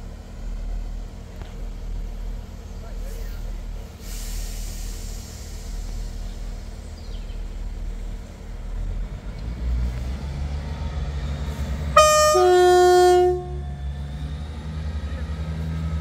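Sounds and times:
train engines rumbling: 0.0 - 16.0
two-note train horn: 11.9 - 14.0.

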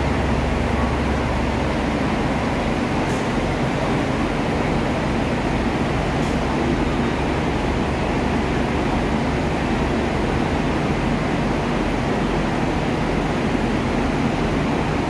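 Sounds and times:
idling diesel railcar hum and hiss: 0.0 - 15.0.

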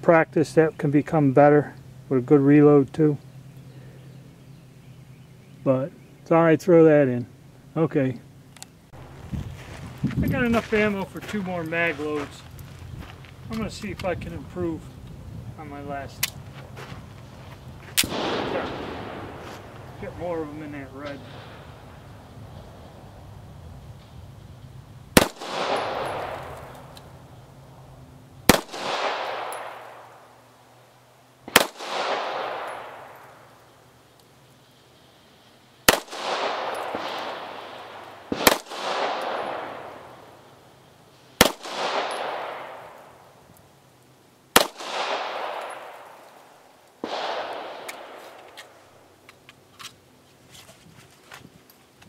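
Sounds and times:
pistol shots with echo: 18.0 - 22.0, 25.1 - 27.2, 28.4 - 30.4, 31.5 - 33.6, 35.8 - 40.5, 41.4 - 43.3, 44.5 - 48.8.

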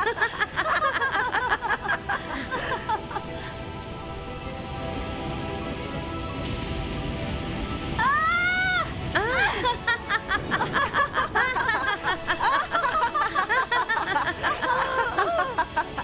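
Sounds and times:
high-pitched cartoon laughter: 9.2 - 16.0.

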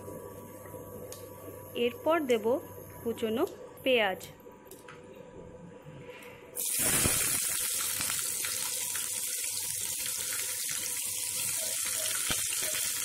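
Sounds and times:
onions frying in hot oil: 6.6 - 13.0.

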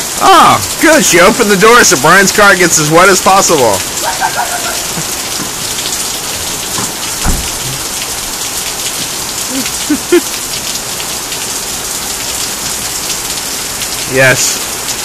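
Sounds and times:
heavy rain on cars and pavement: 0.0 - 15.0
low thud: 6.8 - 7.8.

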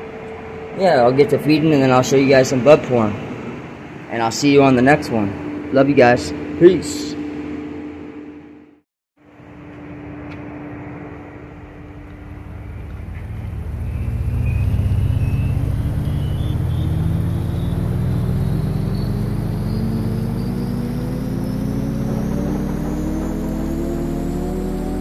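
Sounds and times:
machine humming: 10.0 - 25.0
deep rumble rising in pitch: 11.0 - 25.0.

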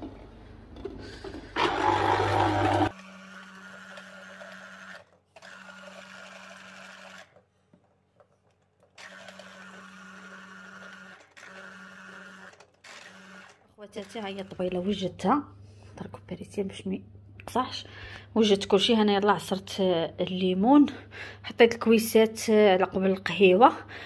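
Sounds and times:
citrus juicer motor humming: 1.3 - 7.5, 8.6 - 14.6.

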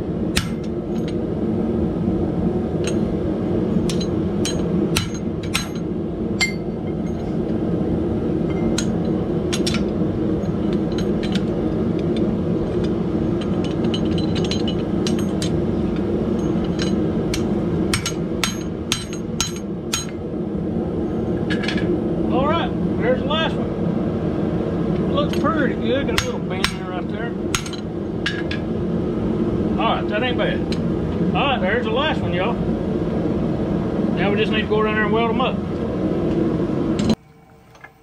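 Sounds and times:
low drone: 0.0 - 38.0
hammer striking metal on anvil: 0.4 - 1.1, 3.8 - 5.8, 6.4 - 7.2, 16.4 - 20.2, 26.2 - 26.9, 27.5 - 28.5.

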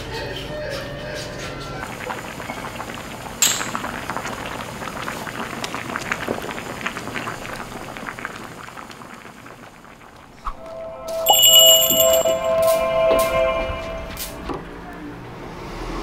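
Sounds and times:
stew bubbling at a boil: 1.8 - 10.6
sharp clink: 3.4 - 3.8, 11.2 - 12.8.

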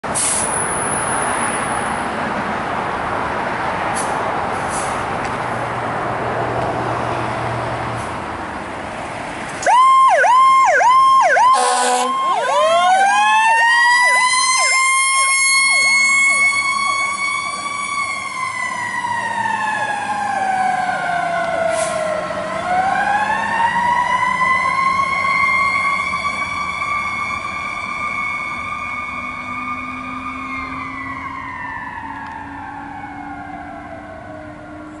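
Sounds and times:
fire engine siren wailing: 9.6 - 35.0.

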